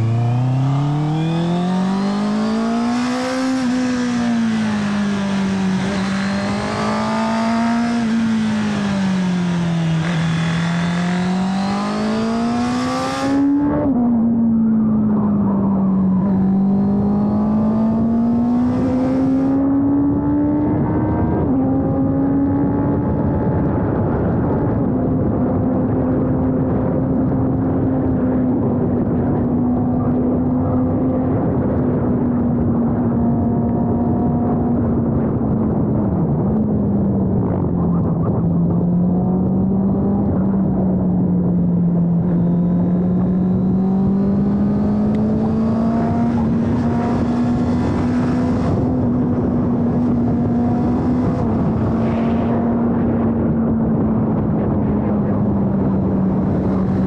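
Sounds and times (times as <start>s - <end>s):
motorcycle engine running: 0.0s - 13.8s, 32.0s - 57.0s
wind rushing: 41.5s - 57.0s.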